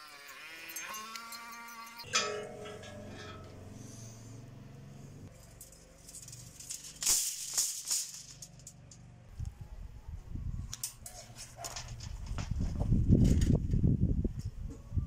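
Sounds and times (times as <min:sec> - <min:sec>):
steel wire rattling and scraping: 0:00.0 - 0:09.3, 0:10.7 - 0:13.8
low rustling of wire strands: 0:05.3 - 0:09.5.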